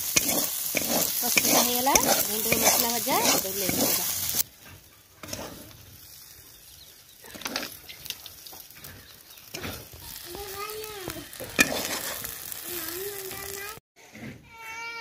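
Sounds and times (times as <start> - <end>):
metal spatula scraping a pan: 0.0 - 5.9, 11.3 - 12.4
faint sizzling: 0.0 - 13.8.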